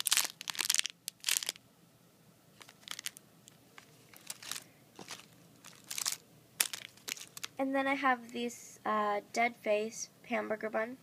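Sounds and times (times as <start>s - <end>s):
plastic wrapping crinkling: 0.0s - 1.6s, 2.6s - 7.6s.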